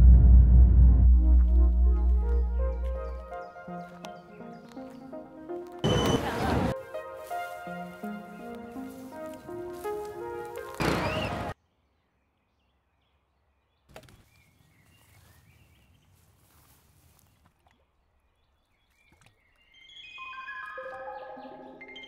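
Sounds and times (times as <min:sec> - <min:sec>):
loud rush of noise: 0:00.0 - 0:02.6
high bird chirps: 0:19.1 - 0:22.0.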